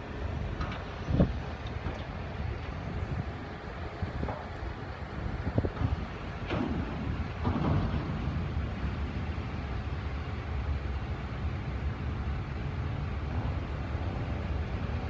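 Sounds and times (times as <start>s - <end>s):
wind buffeting microphone: 0.0s - 11.1s
distant rail yard machinery: 0.0s - 15.0s.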